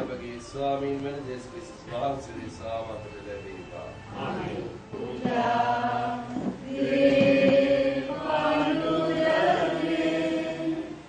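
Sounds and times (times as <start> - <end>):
voices singing liturgical chant: 3.9 - 11.0.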